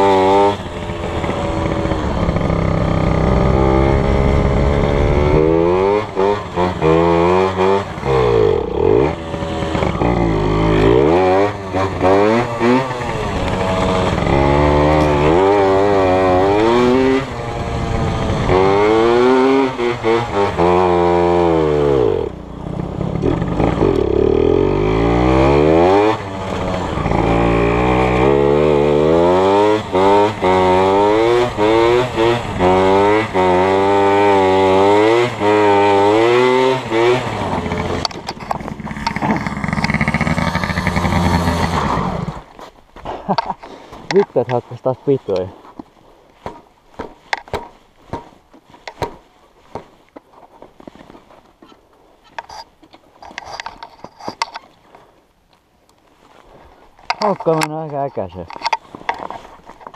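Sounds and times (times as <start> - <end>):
dirt bike engine revving: 0.0 - 42.6.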